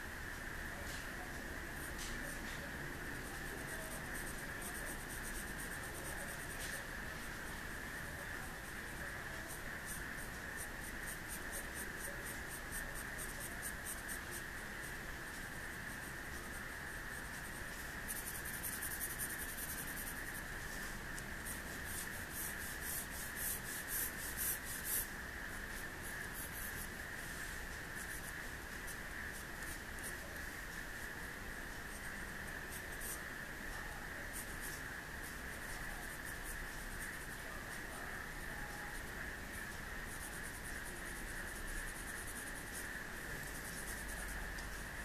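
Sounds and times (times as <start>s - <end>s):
pencil scratching on paper: 1.8s - 14.5s, 15.4s - 30.3s, 31.9s - 33.2s, 40.0s - 44.8s.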